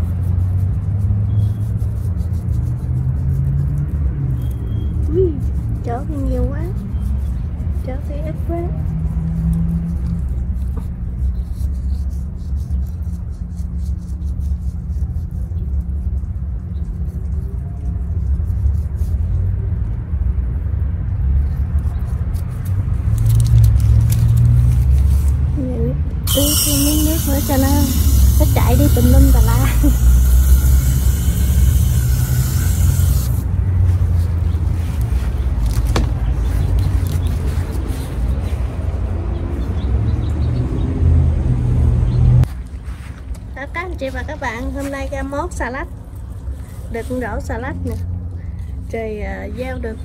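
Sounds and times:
hose spray hissing on soil: 26.3s - 33.5s.

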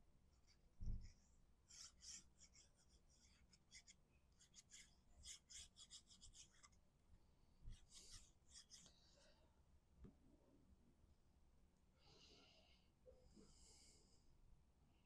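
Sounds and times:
glue nozzle scratching on cardstock: 1.7s - 6.8s, 7.7s - 8.9s.

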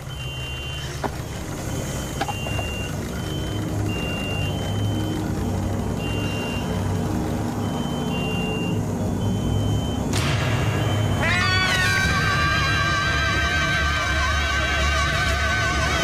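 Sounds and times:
electronic beeping: 0.0s - 1.0s, 1.6s - 11.6s
steady low drone: 1.2s - 16.0s.

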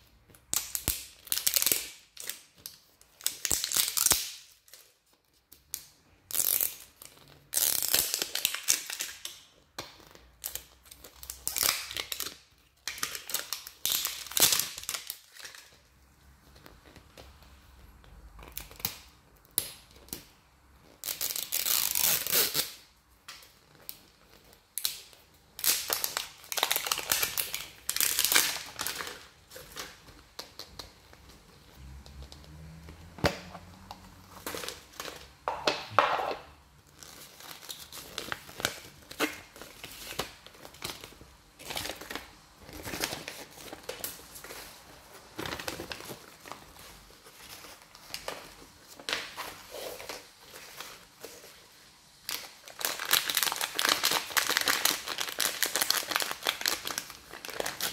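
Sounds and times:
packaging crinkling and tearing: 0.5s - 4.9s, 5.7s - 15.8s, 20.8s - 22.8s, 23.4s - 35.4s, 36.9s - 57.9s.

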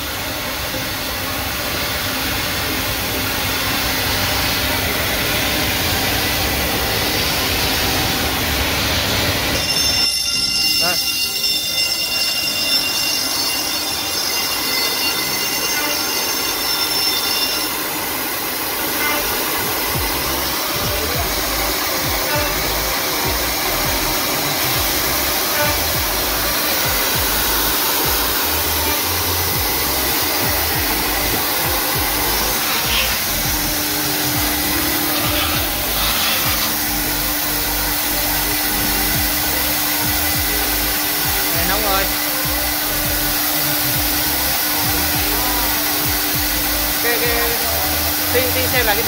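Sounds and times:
dust extraction rushing noise: 0.0s - 49.0s
high machine whine: 0.0s - 49.0s
low hum: 14.1s - 49.0s.

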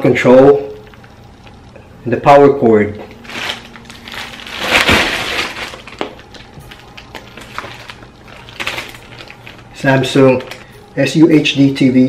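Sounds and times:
plastic bags crinkling: 3.0s - 10.9s.

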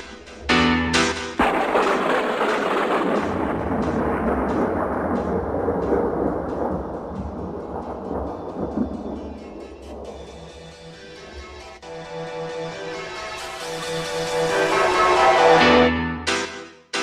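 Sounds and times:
music: 0.0s - 17.0s
rush of rumbling noise: 1.4s - 10.7s.

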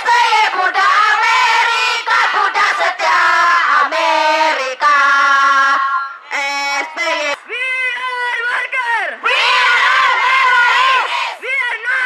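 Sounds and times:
crowd chanting: 0.0s - 7.4s, 9.2s - 11.5s.

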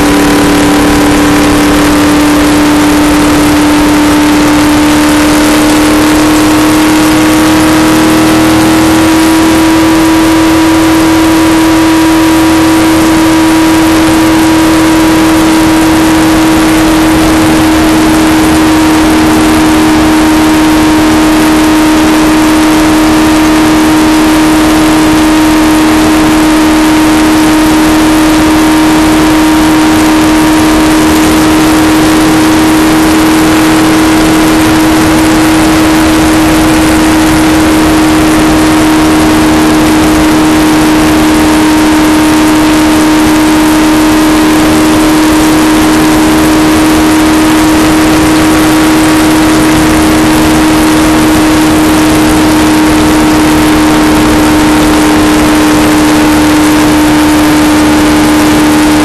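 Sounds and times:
race car engine running flat out: 0.0s - 59.0s
wind and road noise: 0.0s - 59.0s.

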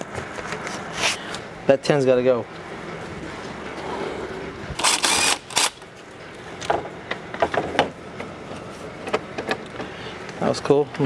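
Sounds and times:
cordless power ratchet running: 4.8s - 5.8s.

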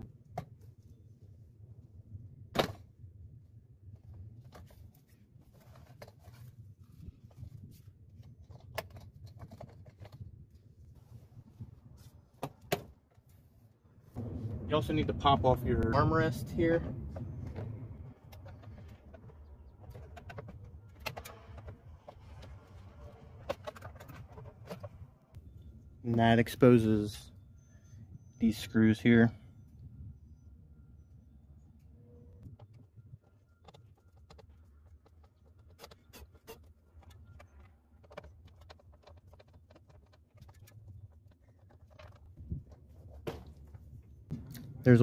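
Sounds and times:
low steady hum: 13.3s - 45.0s
low steady rumble: 13.5s - 35.8s, 36.4s - 45.0s.

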